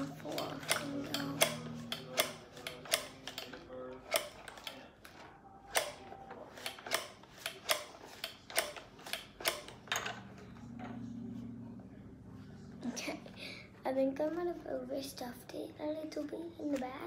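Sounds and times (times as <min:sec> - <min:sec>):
toy machine crank clicking: 0:00.0 - 0:10.2
low steady hum: 0:09.4 - 0:17.0.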